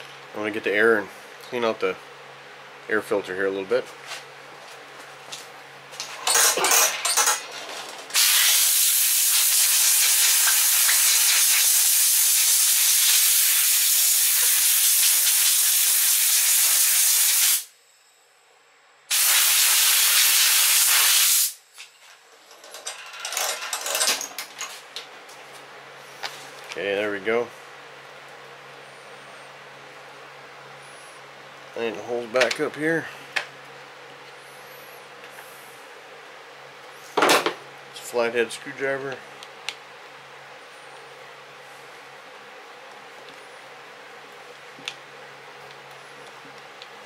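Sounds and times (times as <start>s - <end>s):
compressed air blow gun hissing: 8.2s - 17.7s, 19.1s - 21.6s.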